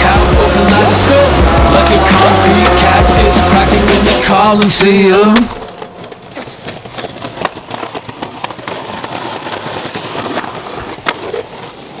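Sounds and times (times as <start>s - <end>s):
skateboard wheels rolling on concrete: 0.0s - 12.0s
sharp skateboard clack: 3.9s - 11.8s.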